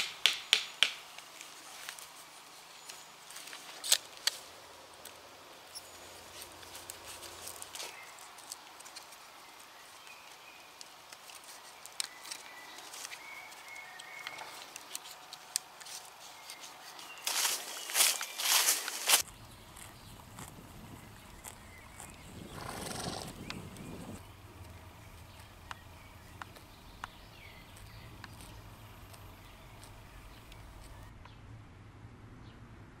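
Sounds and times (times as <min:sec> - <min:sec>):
birds chirping faintly: 0:15.9 - 0:31.4.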